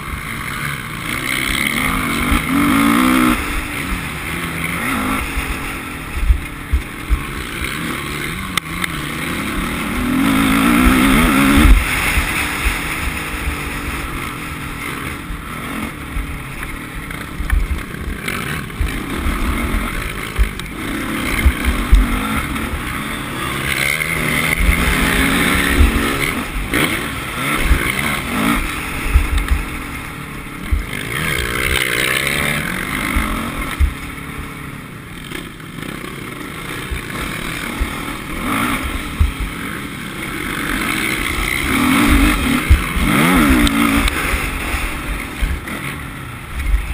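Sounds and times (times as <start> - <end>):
motocross bike engine revving: 0.0 - 46.9.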